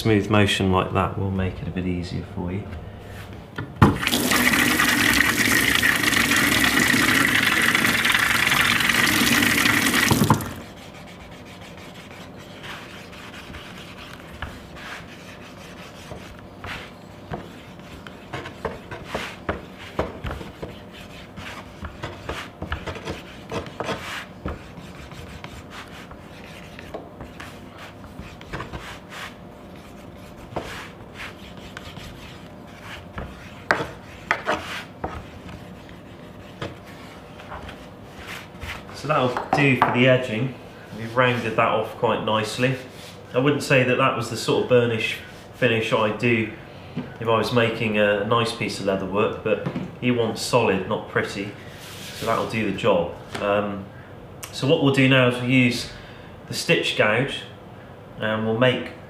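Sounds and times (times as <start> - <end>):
rubbing strokes on leather: 10.5 - 38.9.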